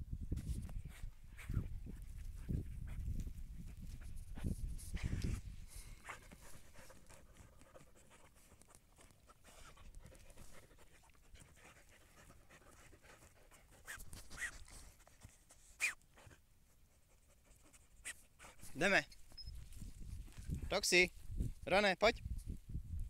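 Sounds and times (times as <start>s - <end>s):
dog paws scratching soil: 0.4s - 21.8s
dog sniffing: 3.7s - 19.4s
dog panting: 5.8s - 15.5s.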